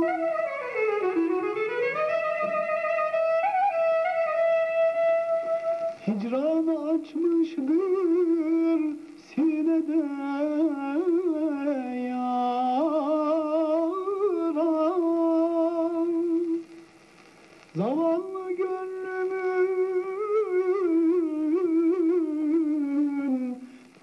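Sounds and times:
man singing ornamented melody: 0.0 - 16.8, 17.7 - 24.0.

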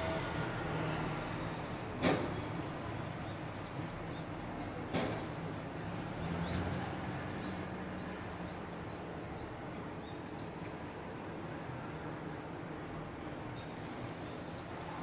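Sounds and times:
vehicle passing: 0.0 - 1.7
city street traffic rumble: 0.0 - 15.0.

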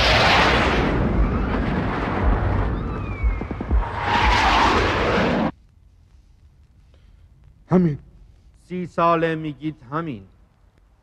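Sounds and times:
rumbling explosions: 0.0 - 5.6.

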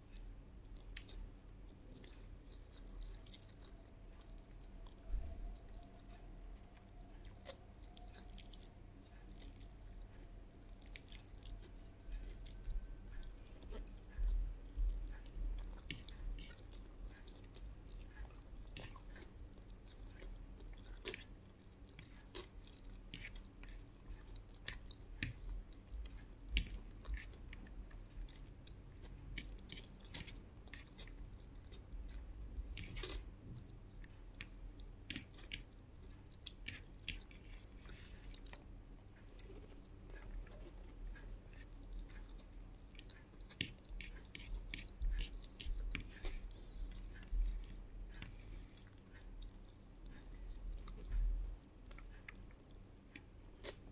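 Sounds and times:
person chewing food: 0.0 - 53.9.

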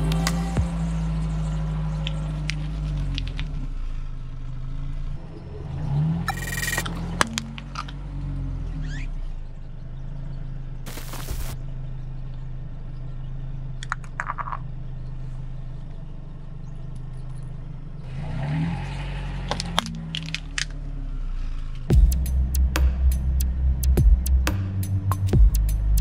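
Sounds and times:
car engine idling: 0.0 - 18.1, 19.1 - 26.0
plastic toys cracking under tyre: 19.5 - 20.8.

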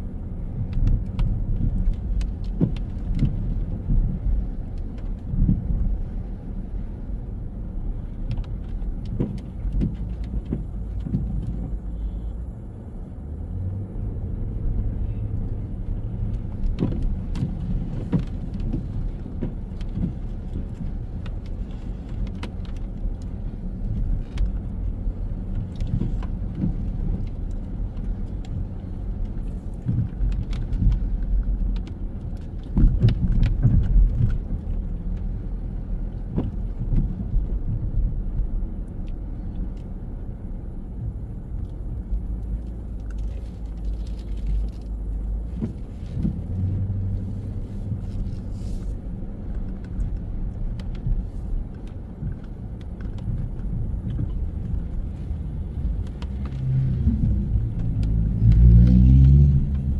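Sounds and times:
low rumble of traffic: 0.0 - 59.9
small clicks and taps: 25.5 - 35.3, 49.4 - 59.9.

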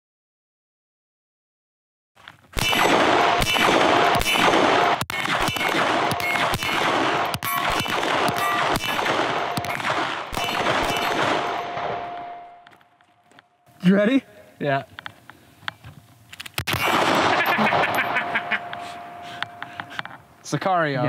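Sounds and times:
pistol shots: 2.6 - 12.8, 16.6 - 19.6
steel targets clanging: 6.0 - 12.8, 16.7 - 20.1.

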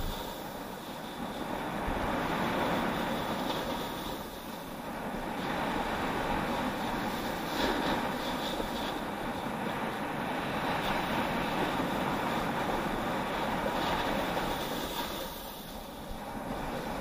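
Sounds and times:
wind on microphone: 0.0 - 17.0
skis scraping over packed snow: 5.4 - 9.5, 10.7 - 15.8.

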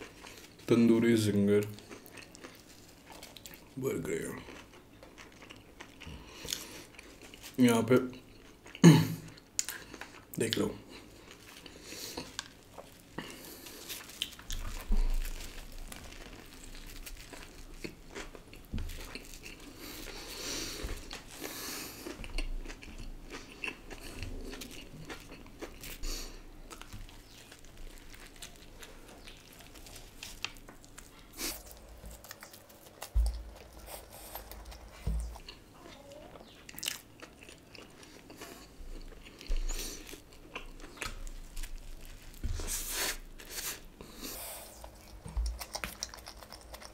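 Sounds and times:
chewing: 1.6 - 3.8, 4.4 - 46.9
crisp crunching bites: 11.3 - 33.8, 39.0 - 43.8.

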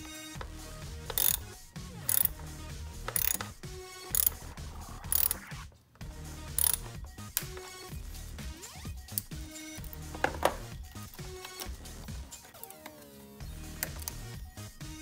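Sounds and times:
hand ratchet clicking: 1.0 - 5.5, 6.4 - 7.8, 9.0 - 12.8, 13.7 - 14.3.

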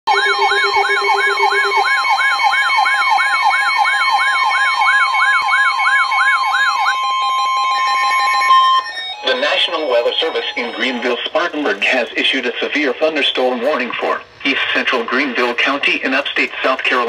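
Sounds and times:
sweeping siren-like alarm tone: 0.1 - 12.2
steady high alert tone: 0.1 - 13.9.

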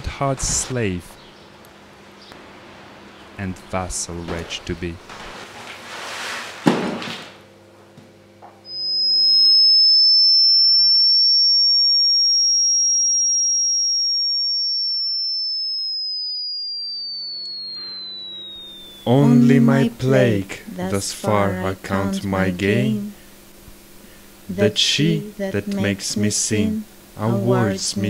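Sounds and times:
rustling: 5.0 - 6.8
high electronic whistle tone: 8.6 - 20.9, 26.6 - 28.0
low hum: 15.7 - 28.0.

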